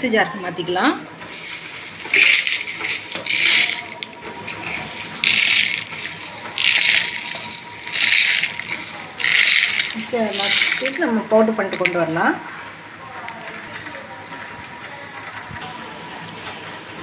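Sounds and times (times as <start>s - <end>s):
grains rattling into metal jar: 1.6s - 12.0s.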